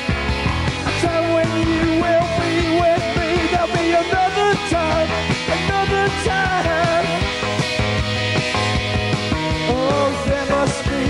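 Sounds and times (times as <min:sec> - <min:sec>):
bass guitar: 0:00.0 - 0:11.0
drum beat: 0:00.0 - 0:11.0
electric guitar: 0:00.0 - 0:11.0
wavering melodic line: 0:01.2 - 0:09.9.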